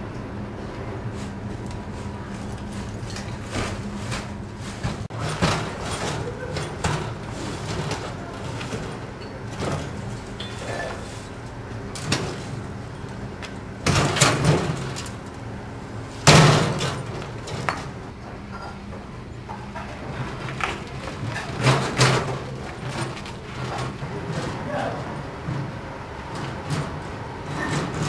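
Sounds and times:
wooden cart rattling and knocking: 1.5s - 11.2s, 11.8s - 15.3s, 19.4s - 28.0s.

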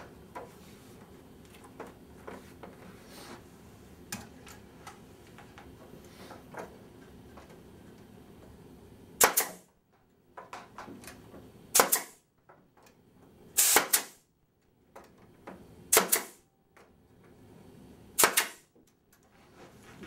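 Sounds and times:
nail gun firing into wood: 9.2s - 9.7s, 11.7s - 12.2s, 13.6s - 14.2s, 15.9s - 16.4s, 18.2s - 18.7s.

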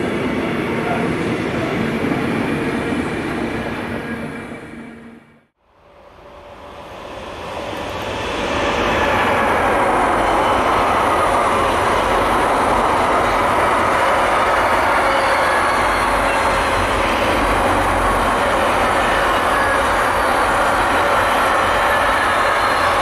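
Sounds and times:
train wheels rumbling on rail: 5.7s - 23.0s.

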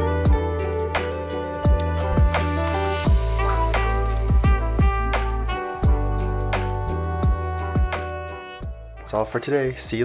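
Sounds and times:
deep kick drum beat: 1.7s - 6.2s, 7.2s - 8.0s.

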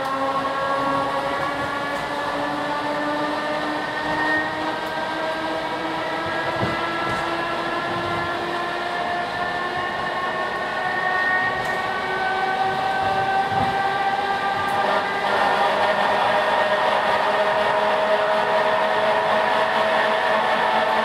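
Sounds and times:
train motor whine: 0.0s - 21.0s
wheels rumbling on track: 0.0s - 21.0s.

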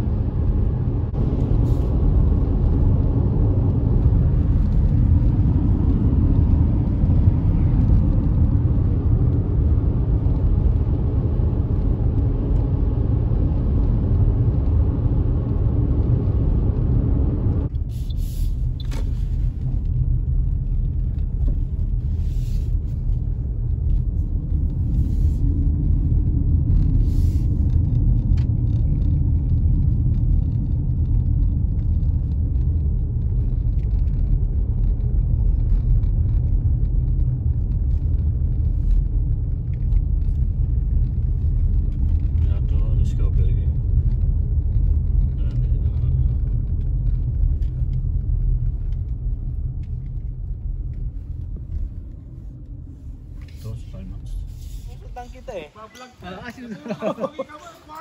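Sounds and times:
tyre and engine rumble in car: 0.0s - 58.0s
road hiss: 17.9s - 19.4s, 27.0s - 27.6s, 53.4s - 58.0s.

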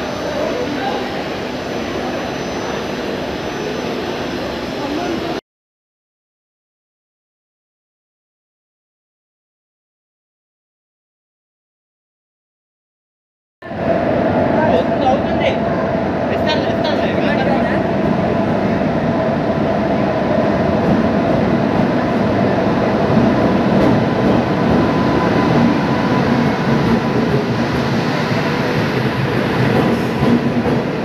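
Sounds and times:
train low din: 13.6s - 31.0s
voices on platform: 13.7s - 18.2s.

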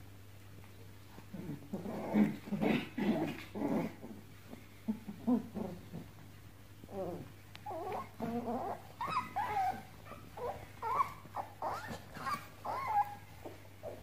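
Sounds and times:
puppies whining and yipping: 7.6s - 14.0s.

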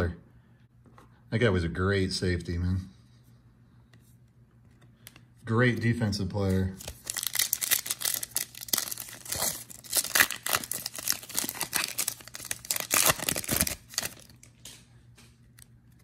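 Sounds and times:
foil wrapper crinkling and tearing: 6.8s - 14.6s.

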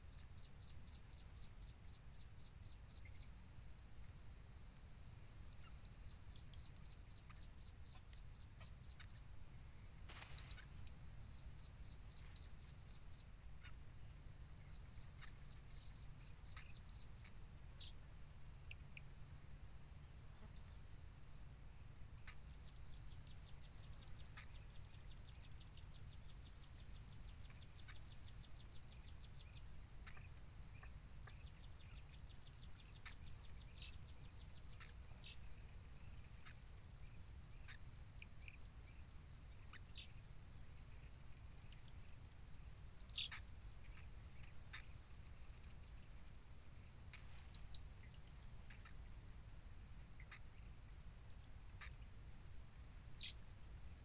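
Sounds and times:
high-pitched insect drone: 30.8s - 46.2s.

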